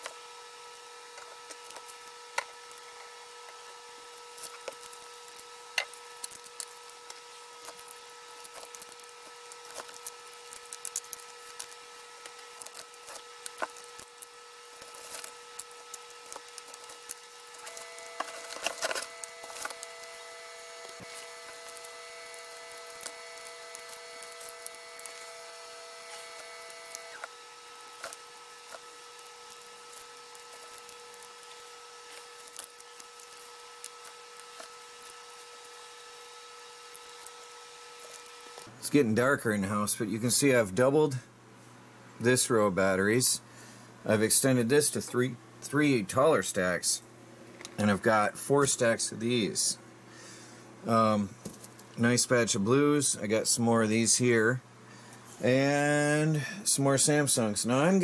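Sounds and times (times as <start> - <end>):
faint electronic whine: 0.0 - 41.4.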